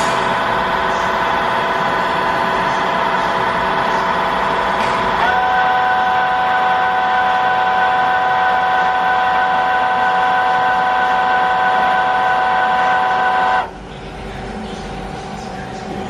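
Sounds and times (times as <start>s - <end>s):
lathe machine whine: 0.0s - 16.0s.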